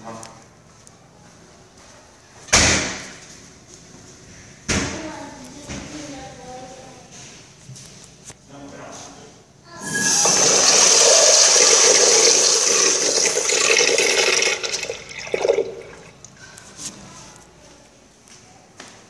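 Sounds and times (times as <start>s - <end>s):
urinal flushing water rush: 9.8s - 16.4s.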